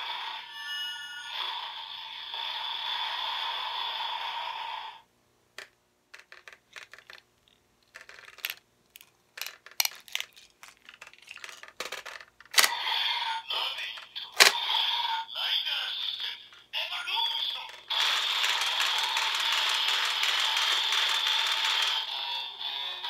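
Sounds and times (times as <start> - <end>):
plastic toy clicks and clacks: 5.6 - 12.8, 13.8 - 14.6, 17.7 - 22.1
toy belt electronic sound: 11.4 - 15.3, 16.9 - 23.0.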